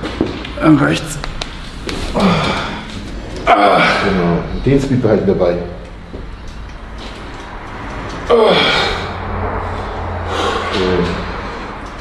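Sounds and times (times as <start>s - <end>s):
man groaning with effort: 2.1s - 4.5s, 8.3s - 9.3s.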